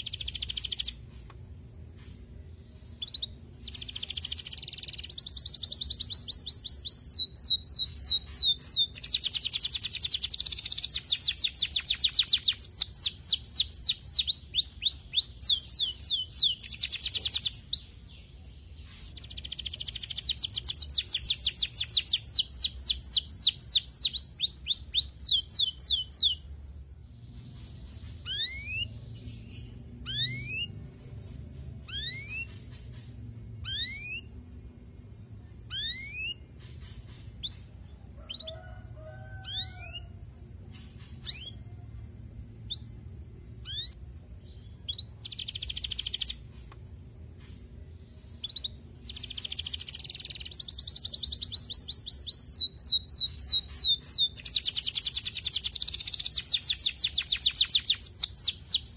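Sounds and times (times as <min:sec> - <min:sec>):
canary singing trills: 0:00.0 - 0:58.9
short rising whistles: 0:27.6 - 0:29.0, 0:30.0 - 0:30.8, 0:31.8 - 0:34.4, 0:35.7 - 0:37.8, 0:40.8 - 0:42.0.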